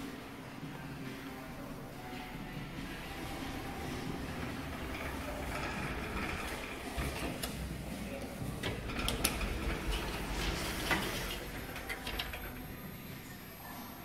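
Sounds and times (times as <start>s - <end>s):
lift doors sliding shut: 2.9s - 13.2s
door mechanism clicking and rattling: 8.6s - 12.8s.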